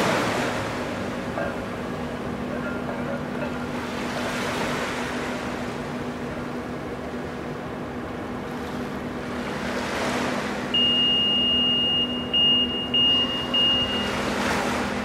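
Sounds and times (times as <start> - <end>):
ship engines humming: 0.0 - 15.0
electronic warning beeper: 10.8 - 14.2.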